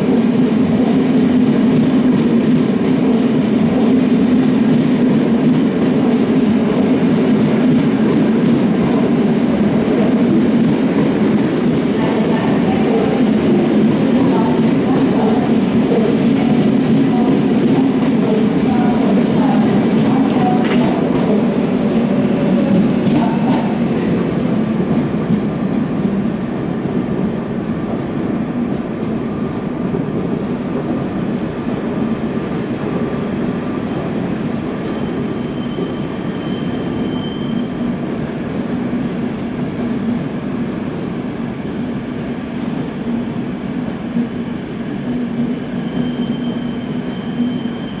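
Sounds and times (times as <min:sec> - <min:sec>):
electric train rumbling: 0:00.0 - 0:48.0.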